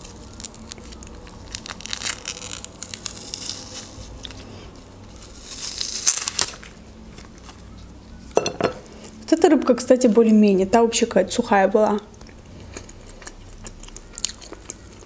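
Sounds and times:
dried fish skin tearing and crackling: 0.0s - 8.0s.

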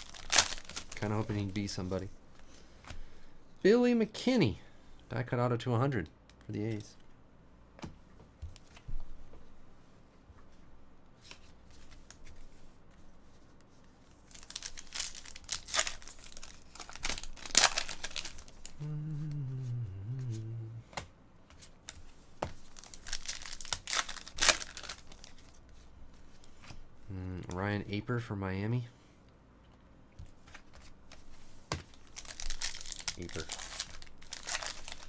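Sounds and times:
foil wrapper tearing and crinkling: 0.0s - 1.2s, 14.2s - 18.8s, 22.7s - 25.6s, 31.9s - 35.0s.

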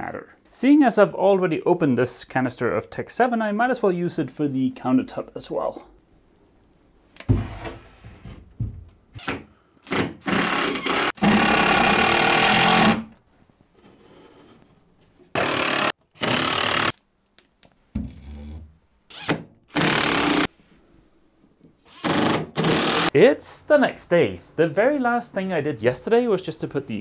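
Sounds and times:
cordless drill driving screws: 9.9s - 13.0s, 15.4s - 16.9s, 19.1s - 20.5s, 21.9s - 23.1s.

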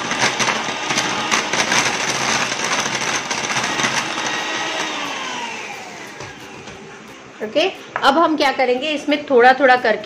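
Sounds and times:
electric hand mixer running: 0.0s - 7.8s.

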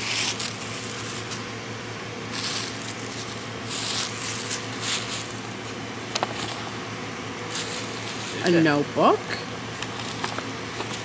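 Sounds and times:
low hum of van: 0.0s - 11.0s
tissue paper rustling: 2.3s - 5.5s, 7.5s - 8.5s.

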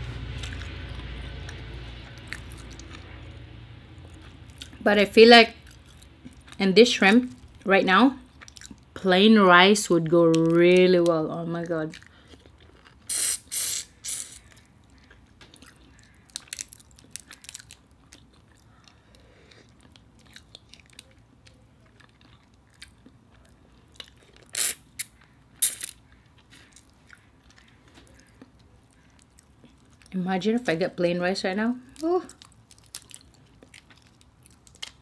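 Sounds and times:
sucking and chewing: 5.6s - 6.6s, 7.2s - 9.0s, 9.9s - 30.2s, 31.8s - 35.0s
shrimp shells crackling: 14.3s - 30.0s, 31.9s - 35.0s.

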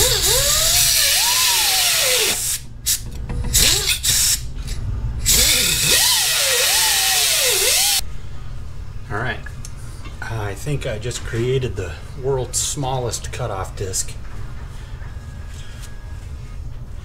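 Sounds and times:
pneumatic cutoff tool cutting metal: 0.0s - 8.0s.

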